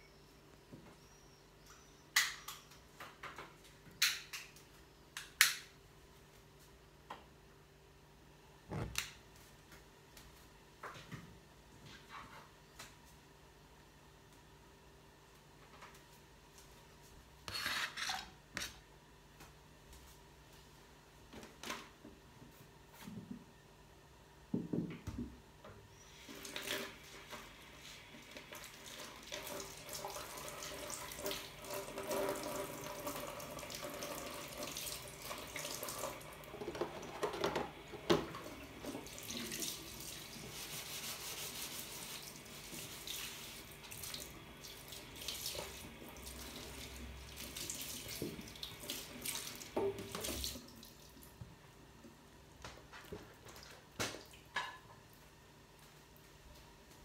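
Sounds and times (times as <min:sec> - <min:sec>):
tap water running into sink: 0:28.2 - 0:40.6, 0:42.2 - 0:51.0.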